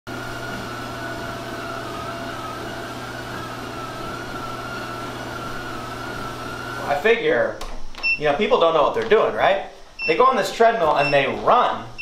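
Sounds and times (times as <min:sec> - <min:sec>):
treadmill hum with high whine: 0:00.1 - 0:07.4.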